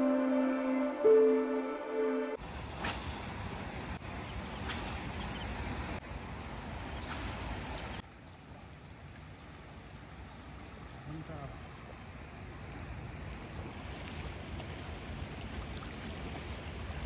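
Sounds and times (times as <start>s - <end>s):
river flowing: 0.0s - 17.0s
brief swishes: 2.8s - 3.3s.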